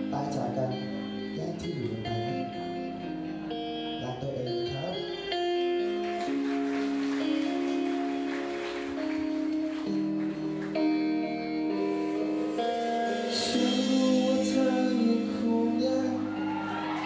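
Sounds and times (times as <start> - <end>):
guitar: 0.0 - 17.0
person singing: 13.2 - 17.0.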